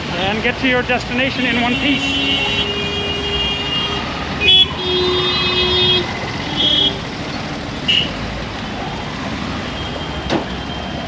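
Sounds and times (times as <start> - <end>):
engine and tyre noise: 0.0 - 11.0
vehicle horns honking: 1.3 - 7.0, 7.9 - 8.2.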